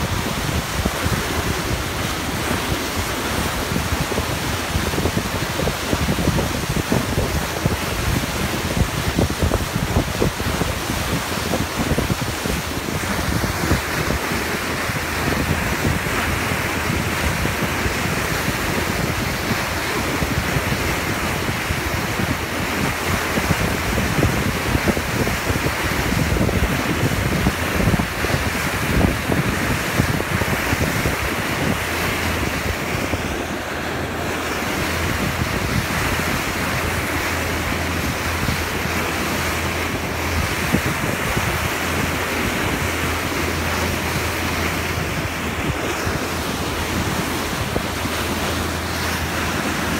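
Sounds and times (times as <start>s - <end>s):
wind buffeting microphone: 0.0s - 49.9s
bow wave rushing and hissing: 26.3s - 49.9s.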